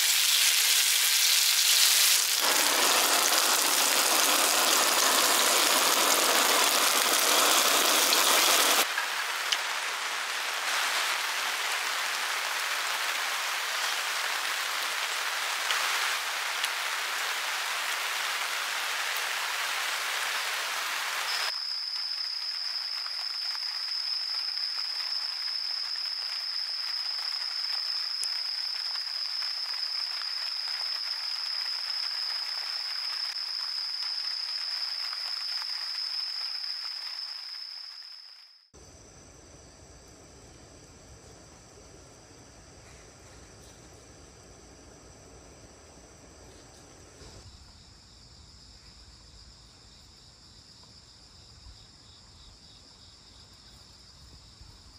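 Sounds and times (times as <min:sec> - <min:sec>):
meat sizzling on a griddle: 0:00.0 - 0:08.8
blowtorch burning: 0:00.0 - 0:08.9.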